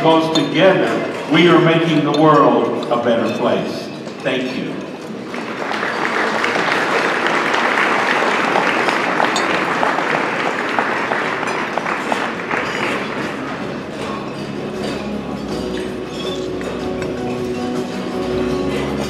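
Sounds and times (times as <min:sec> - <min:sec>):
audience applauding: 0:05.0 - 0:14.1.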